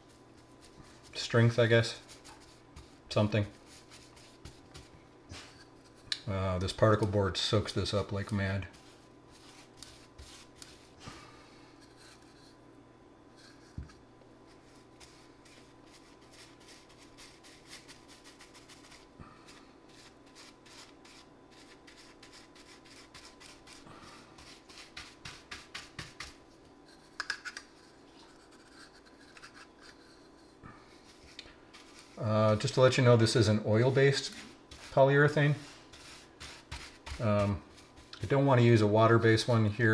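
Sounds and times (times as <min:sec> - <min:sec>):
paintbrush bristles scratching board: 0:00.0 - 0:04.9, 0:07.5 - 0:11.0, 0:14.5 - 0:27.1, 0:27.8 - 0:38.5.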